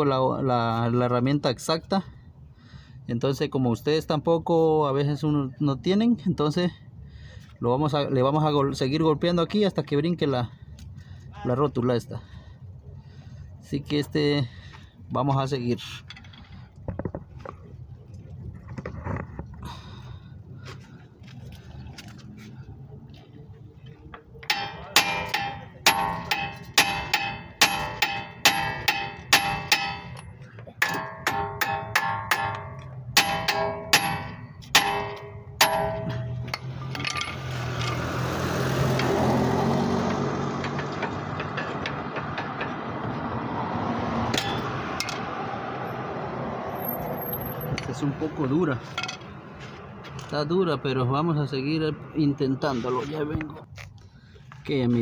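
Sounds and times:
hammer blows on metal: 24.4 - 36.6
tool scraping on pavement: 36.0 - 43.1, 52.6 - 55.0
hand tools knocking on pavement: 40.0 - 43.0.

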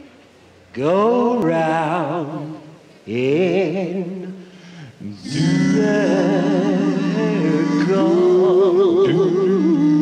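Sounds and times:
vocal group singing in harmony: 5.0 - 10.0.

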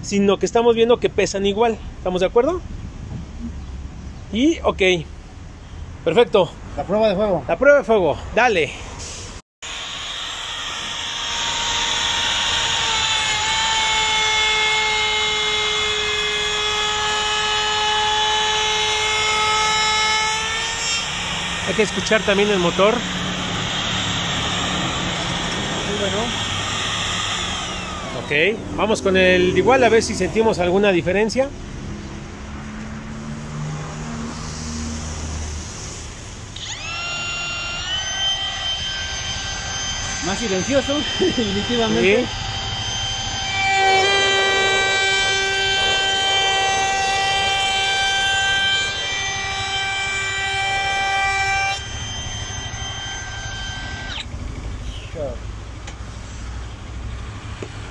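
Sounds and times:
router whining at high speed: 9.6 - 30.9, 35.7 - 56.0.

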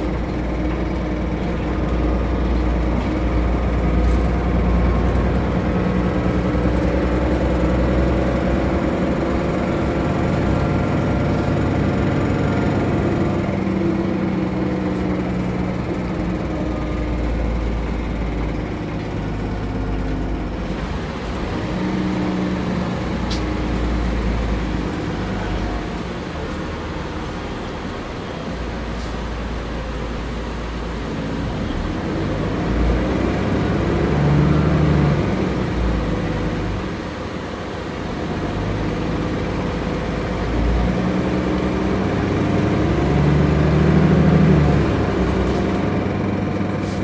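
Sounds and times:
bus engine running: 0.0 - 47.0.

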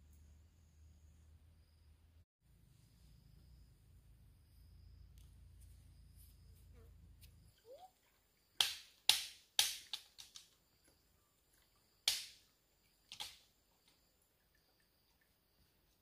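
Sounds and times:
sharp cracks or knocks: 8.6 - 10.6, 12.0 - 12.4, 13.1 - 13.4.

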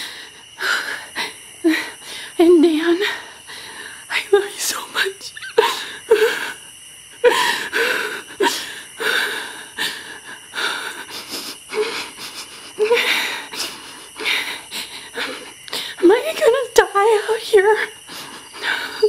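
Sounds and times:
woman breathing hard and gasping: 7.2 - 16.0, 18.0 - 19.0.

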